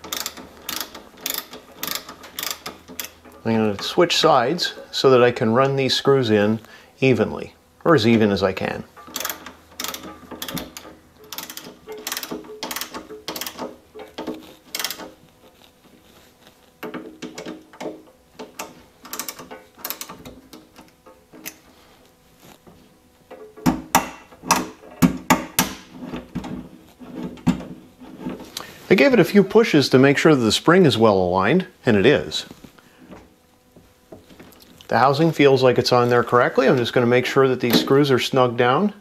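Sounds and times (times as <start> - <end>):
screwdriver clicking: 9.1 - 15.1.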